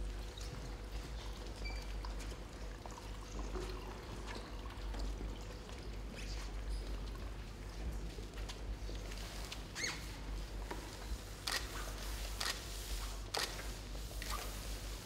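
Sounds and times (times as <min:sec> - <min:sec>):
liquid sloshing and dripping: 0:01.1 - 0:06.5.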